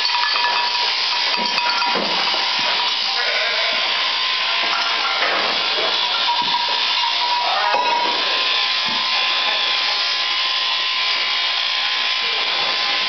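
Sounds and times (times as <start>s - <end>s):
electric shearing machines whirring: 0.0s - 13.0s
sheep bleating: 2.9s - 5.3s, 6.0s - 8.6s.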